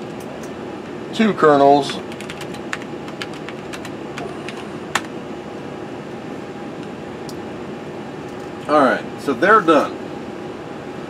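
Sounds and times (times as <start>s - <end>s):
steady background hum: 0.0s - 11.0s
computer keyboard keystrokes: 1.9s - 3.9s.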